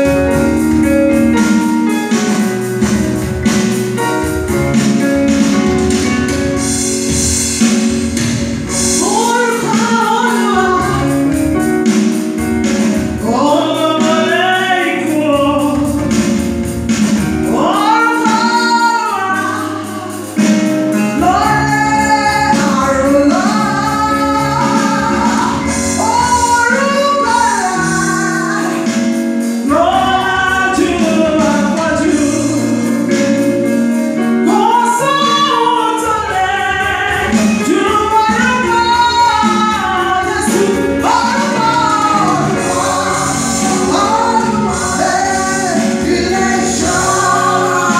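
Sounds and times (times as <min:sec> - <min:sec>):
amplified accompaniment with beat: 0:00.0 - 0:47.9
woman singing gospel song: 0:08.7 - 0:11.9, 0:13.2 - 0:16.4, 0:17.4 - 0:33.8, 0:34.4 - 0:47.9.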